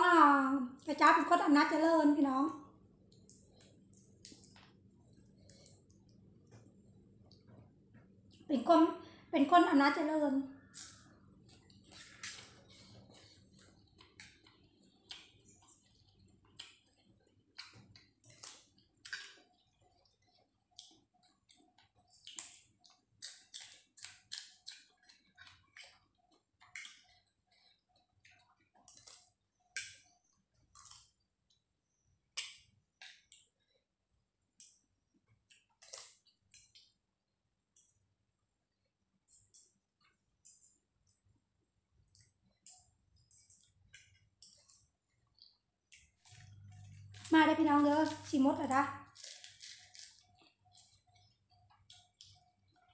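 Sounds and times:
wet mouth clicks and chewing: 0:03.0 - 0:08.5, 0:10.6 - 0:33.8, 0:34.5 - 0:37.0, 0:39.3 - 0:41.3, 0:42.0 - 0:47.3, 0:49.0 - 0:52.9.

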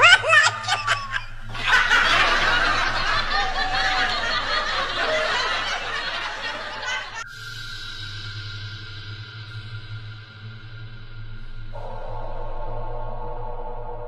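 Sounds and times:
canned laughter: 0:00.0 - 0:07.2.

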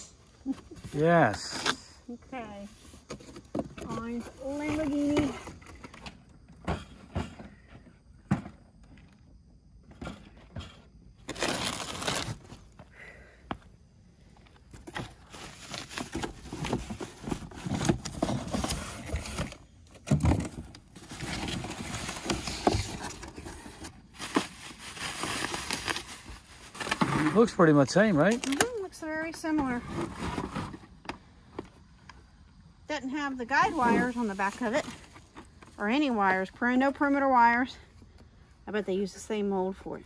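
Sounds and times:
cardboard and bubble wrap rustling: 0:02.5 - 0:06.0, 0:11.2 - 0:12.8, 0:14.5 - 0:31.0, 0:33.5 - 0:36.6.

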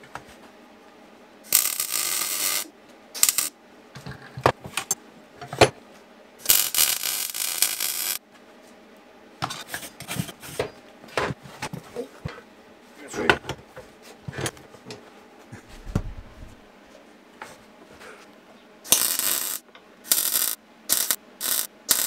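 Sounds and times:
arc welding crackling: 0:01.4 - 0:03.6, 0:06.4 - 0:08.2, 0:18.9 - 0:22.0.

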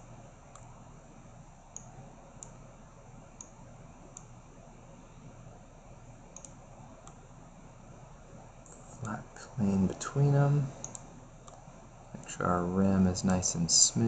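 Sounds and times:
faint room hiss: 0:00.0 - 0:14.0
computer mouse clicking: 0:00.5 - 0:00.7, 0:01.7 - 0:02.6, 0:03.4 - 0:04.4, 0:06.3 - 0:07.2, 0:10.8 - 0:11.6.

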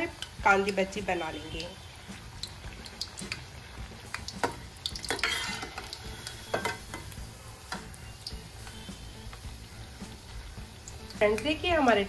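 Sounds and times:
oil sizzling and crackling: 0:00.0 - 0:12.0
metal spoon scraping a pan: 0:04.4 - 0:07.9.

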